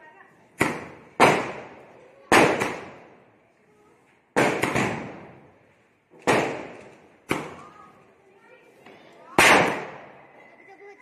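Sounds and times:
firecrackers bursting with echo: 0:00.4 - 0:03.4, 0:04.2 - 0:08.0, 0:09.2 - 0:10.4.

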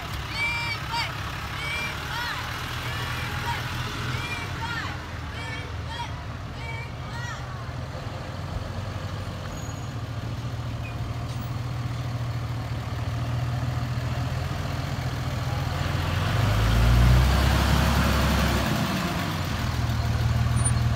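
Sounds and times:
pickup truck engine passing: 0:07.7 - 0:20.9.

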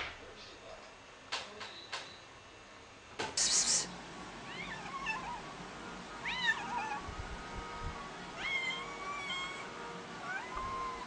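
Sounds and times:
cat meowing: 0:04.5 - 0:05.4, 0:06.2 - 0:07.0, 0:08.4 - 0:11.0.

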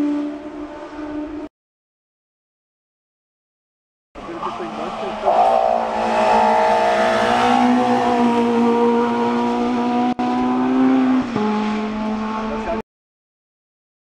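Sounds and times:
race car engine at high revs: 0:04.2 - 0:12.8.

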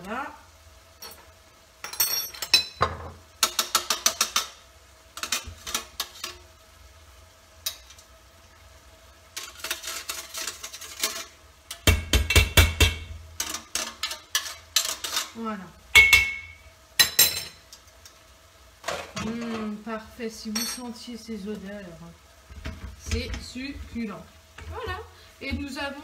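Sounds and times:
metal spoon scraping a grater: 0:09.4 - 0:11.4, 0:13.4 - 0:15.4.

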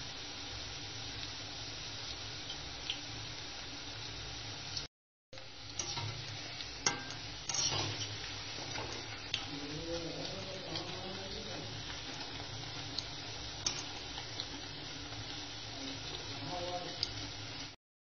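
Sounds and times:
fritters sizzling in hot oil: 0:00.0 - 0:17.8
spoon clinking against metal pan: 0:06.9 - 0:07.2.

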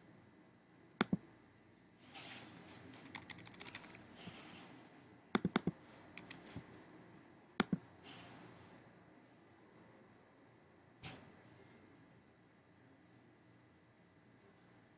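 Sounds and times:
typing on computer keyboard: 0:02.9 - 0:04.0, 0:05.4 - 0:06.6
mouse double click: 0:05.4 - 0:06.4.

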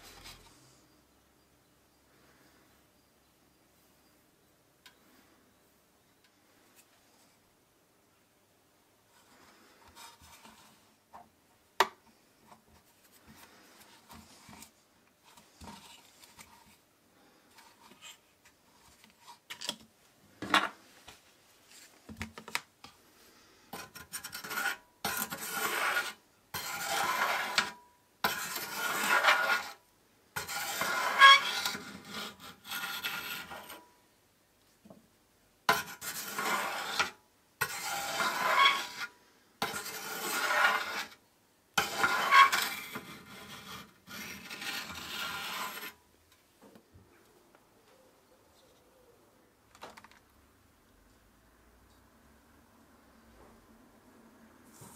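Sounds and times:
faint scratching: 0:12.1 - 0:19.5, 0:23.2 - 0:29.8, 0:30.4 - 0:33.9, 0:35.7 - 0:41.2, 0:41.8 - 0:46.0
spoon scraping metal pot: 0:23.8 - 0:29.8, 0:30.4 - 0:33.8, 0:35.7 - 0:41.2, 0:41.8 - 0:46.0.

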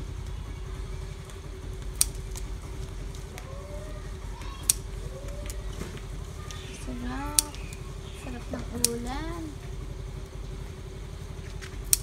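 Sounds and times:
steady low rumble: 0:00.0 - 0:12.0
scissors snipping stems: 0:01.8 - 0:03.5, 0:04.4 - 0:09.5, 0:11.4 - 0:12.0.

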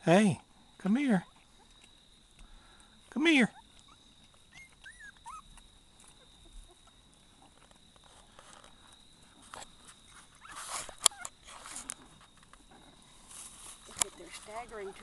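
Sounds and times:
puppy squeak: 0:03.5 - 0:05.4
soft rustling and shuffling: 0:05.9 - 0:15.0.

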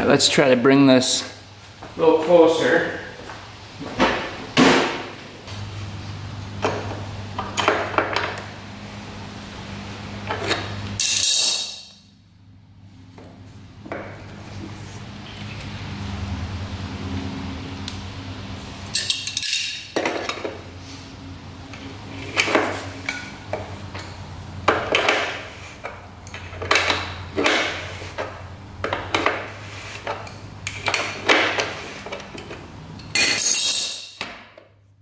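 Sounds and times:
steady low hum: 0:00.0 - 0:33.2
metal tools clinking and scraping: 0:10.3 - 0:12.1, 0:18.9 - 0:20.6, 0:29.9 - 0:34.3.

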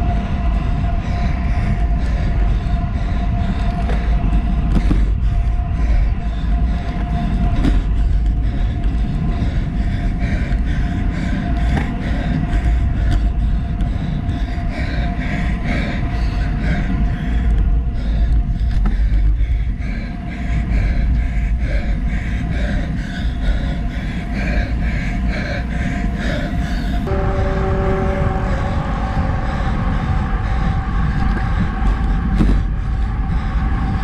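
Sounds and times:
faint steady hum: 0:00.0 - 0:34.0
wind buffeting microphone: 0:00.0 - 0:34.0
bike tyres rolling on asphalt: 0:28.2 - 0:34.0.

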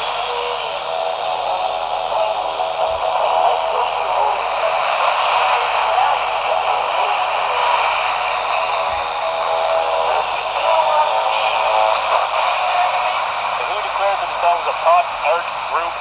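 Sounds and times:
faint radio program audio: 0:00.0 - 0:16.0
radio static hiss: 0:00.0 - 0:16.0.

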